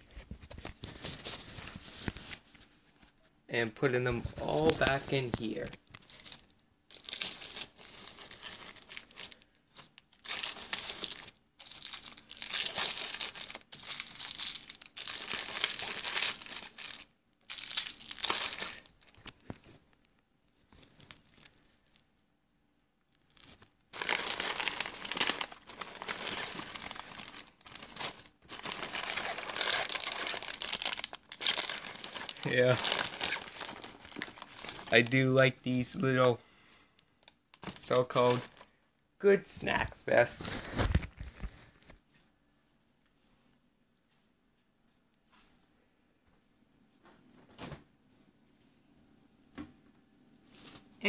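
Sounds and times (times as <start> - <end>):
plastic wrappers crinkling: 4.0 - 22.2, 23.1 - 38.7.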